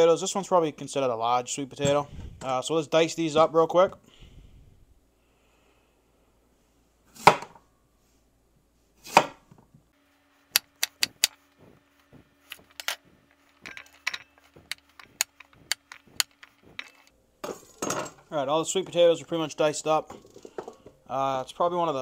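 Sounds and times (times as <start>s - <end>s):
knife chopping on cutting board: 7.2s - 7.5s, 9.1s - 9.4s.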